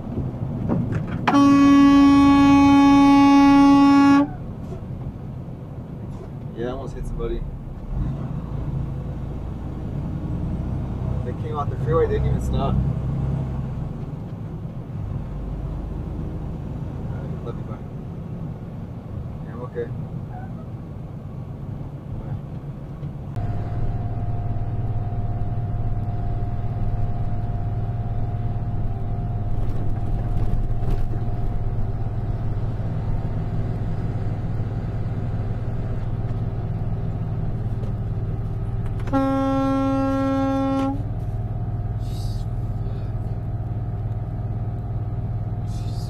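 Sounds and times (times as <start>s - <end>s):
vehicle horn blast: 1.2s - 4.4s, 39.0s - 41.1s
vehicle driving drone: 4.3s - 19.2s, 22.0s - 46.0s.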